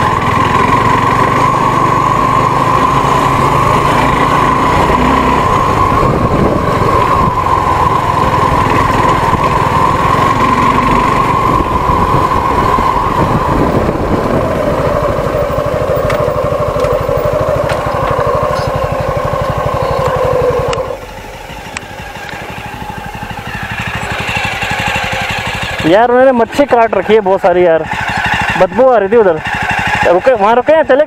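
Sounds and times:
motorcycle engine running: 0:00.0 - 0:31.0.

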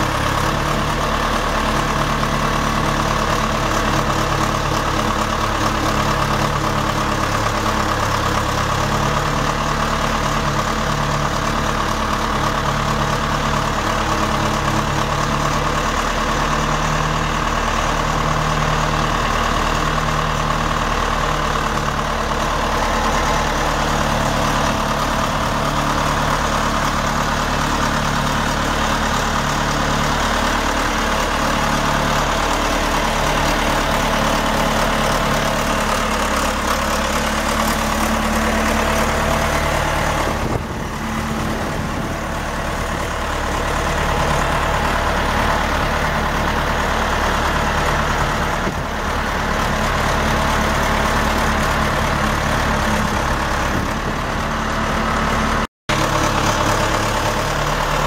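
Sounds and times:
diesel engine idling: 0:00.0 - 0:58.0.

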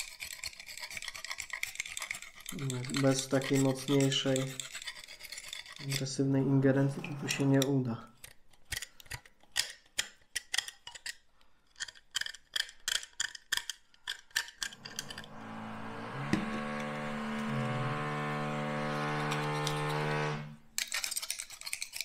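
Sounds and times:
utility knife scraping foam: 0:00.0 - 0:06.2
steady machine drone: 0:14.8 - 0:20.6.

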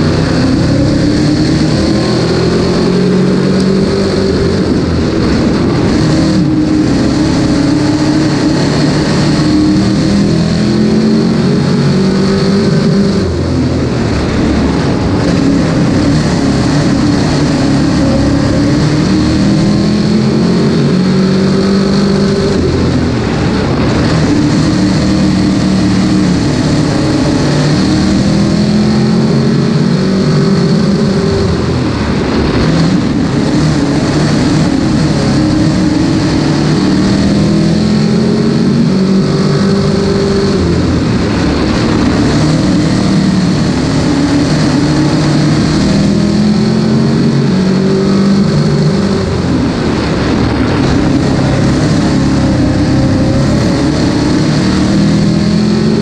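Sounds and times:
race car engine revving: 0:00.0 - 0:56.0.

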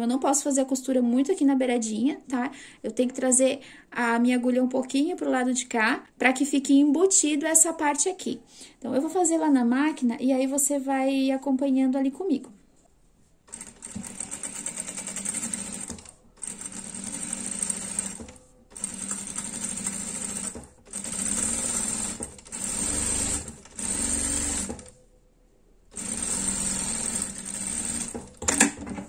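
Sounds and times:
sewing machine stitching: 0:13.5 - 0:25.0, 0:25.9 - 0:29.0.

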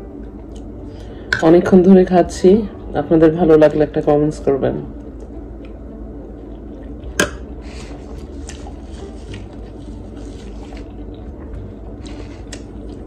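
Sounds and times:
steady low hum: 0:00.0 - 0:13.0
chewing and wet mouth sounds: 0:05.1 - 0:13.0.

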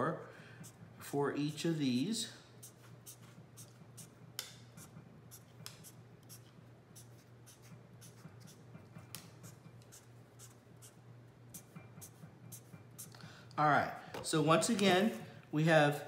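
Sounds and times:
marker scratching on paper: 0:02.6 - 0:04.2, 0:04.8 - 0:13.2.

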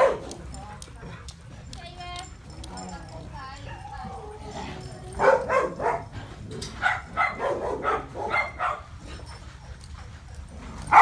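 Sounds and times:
dog barking: 0:00.0 - 0:00.4, 0:05.2 - 0:06.2, 0:06.8 - 0:09.0.

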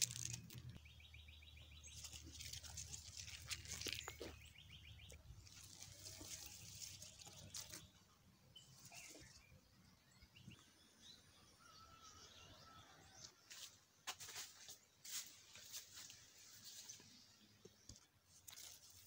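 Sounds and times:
bird calls: 0:00.5 - 0:12.8.

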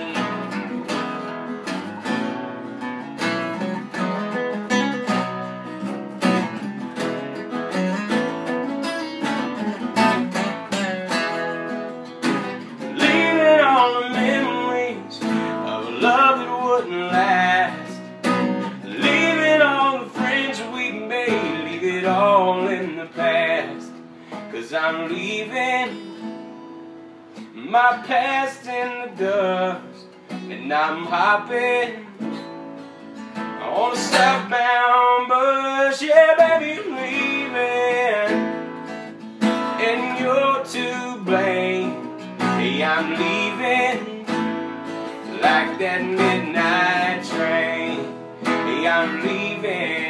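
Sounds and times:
person singing: 0:00.0 - 0:00.6, 0:12.8 - 0:18.1, 0:18.8 - 0:26.2, 0:33.6 - 0:38.5, 0:39.7 - 0:44.5, 0:45.2 - 0:50.0
acoustic guitars strumming: 0:00.0 - 0:50.0.

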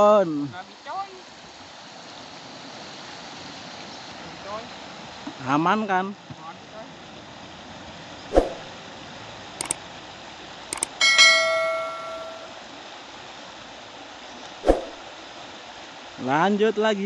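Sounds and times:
whoosh sound effect: 0:08.3 - 0:08.7, 0:14.6 - 0:15.0
mouse clicks: 0:10.8 - 0:11.0
notification bell chime: 0:10.8 - 0:12.6.

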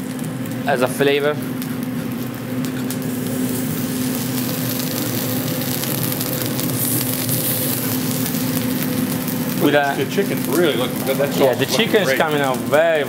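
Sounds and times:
food sizzling on a griddle: 0:00.0 - 0:13.0
low machine hum: 0:00.0 - 0:13.0
metal spatula on griddle: 0:06.1 - 0:08.4.

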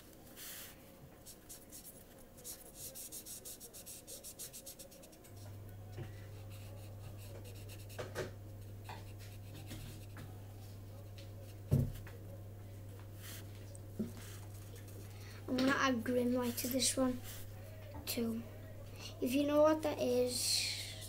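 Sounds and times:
marker pen scribbling on paper: 0:00.4 - 0:05.5, 0:06.4 - 0:10.4, 0:13.2 - 0:15.1, 0:16.0 - 0:17.5
steady low hum: 0:03.7 - 0:21.0.

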